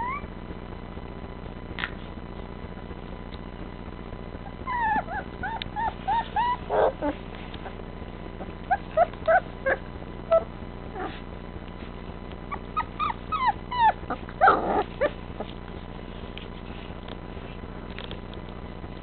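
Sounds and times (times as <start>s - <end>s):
puppies whining: 0.0s - 0.3s, 4.4s - 7.8s, 8.4s - 11.3s, 12.5s - 15.6s
puppy yelping: 0.0s - 0.3s, 4.4s - 7.8s, 8.4s - 11.2s, 12.5s - 15.6s.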